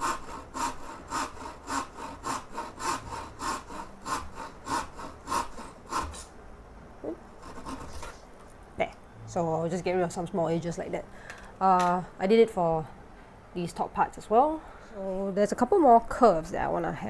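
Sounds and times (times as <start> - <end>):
back saw cutting wood: 0.0 - 6.3, 7.4 - 8.1.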